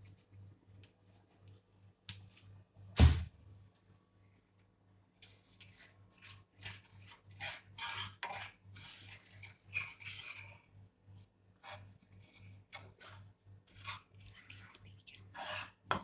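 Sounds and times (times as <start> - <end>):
wooden spoon scraping a pan: 5.2 - 16.0.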